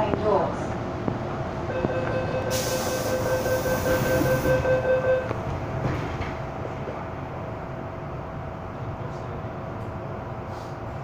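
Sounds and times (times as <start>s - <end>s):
train noise: 0.0s - 11.0s
hiss: 2.5s - 3.8s.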